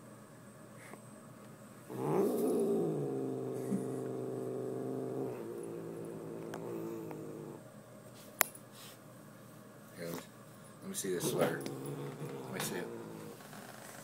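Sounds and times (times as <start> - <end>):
cat growling: 1.9 - 7.6, 11.2 - 14.0.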